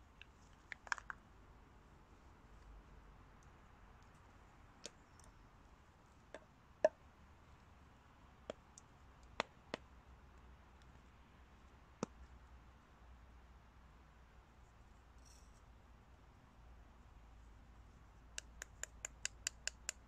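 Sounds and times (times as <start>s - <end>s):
sharp clicks and snaps: 0.2s - 1.2s, 18.4s - 20.0s.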